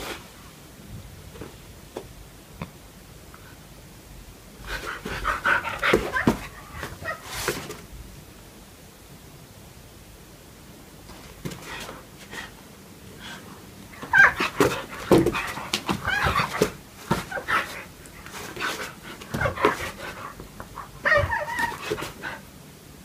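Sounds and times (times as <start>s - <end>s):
dog whining: 5.1s - 7.4s, 13.9s - 17.9s, 18.5s - 22.4s.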